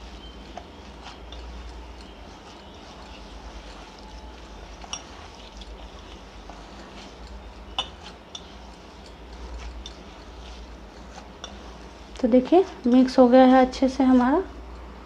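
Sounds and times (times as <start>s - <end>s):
bangles clinking on steel bowl: 0.0s - 11.9s
hand kneading soft dough: 0.0s - 15.0s.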